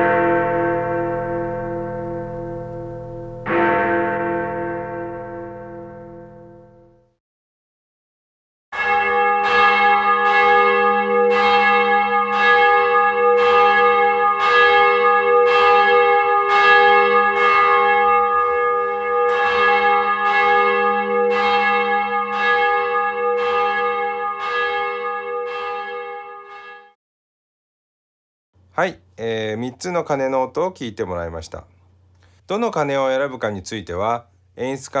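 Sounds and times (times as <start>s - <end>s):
bell ringing: 0.0s - 6.8s.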